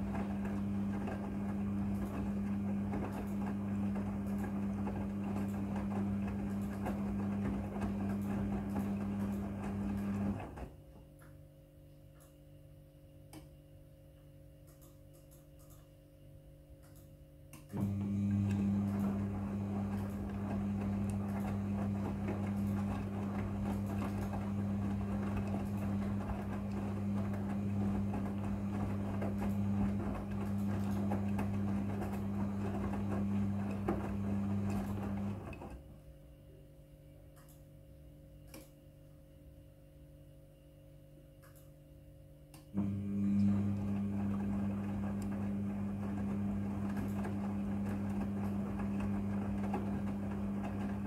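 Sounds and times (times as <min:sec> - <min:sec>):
washing machine motor humming: 0:00.0 - 0:11.2, 0:17.6 - 0:36.6, 0:42.5 - 0:51.0.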